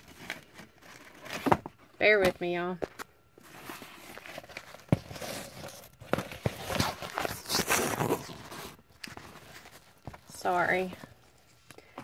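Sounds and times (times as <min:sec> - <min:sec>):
fabric and plastic rustling: 0:02.9 - 0:12.0.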